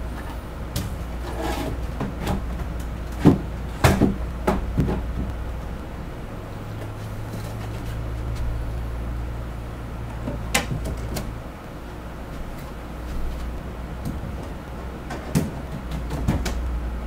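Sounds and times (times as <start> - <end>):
steady low hum: 0.0 - 17.0
shelf panels knocking: 0.7 - 5.3, 14.0 - 16.7.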